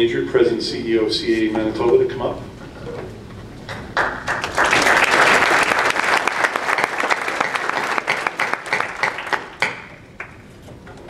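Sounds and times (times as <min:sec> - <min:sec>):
audience applauding: 0:03.7 - 0:10.5.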